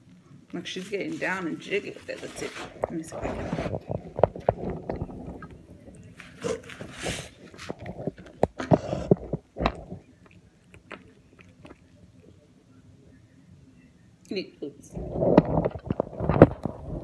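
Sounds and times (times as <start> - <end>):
cat crunching bone: 1.6 - 12.2.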